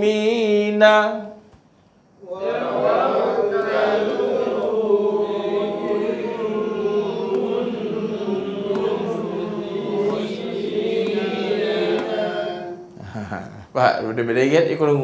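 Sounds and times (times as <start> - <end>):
person chanting slowly: 2.2 - 13.4.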